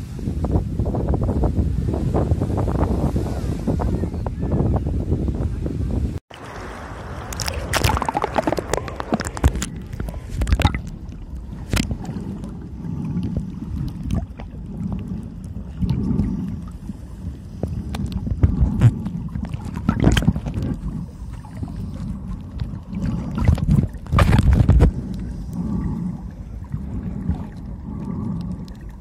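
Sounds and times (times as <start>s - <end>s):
muffled underwater rumble: 0.0s - 29.0s
water sloshing and gurgling: 6.2s - 29.0s.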